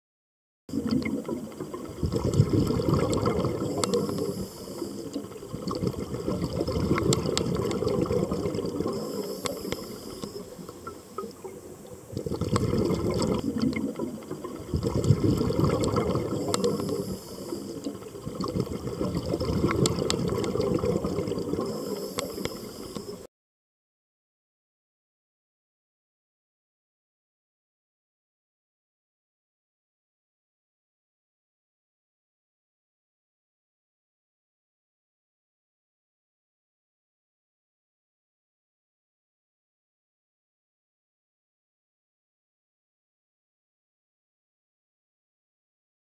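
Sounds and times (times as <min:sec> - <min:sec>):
underwater bubbling and gurgling: 0:00.7 - 0:23.3
faint clicks: 0:03.0 - 0:06.0, 0:06.9 - 0:08.0, 0:08.6 - 0:21.0, 0:21.6 - 0:23.3.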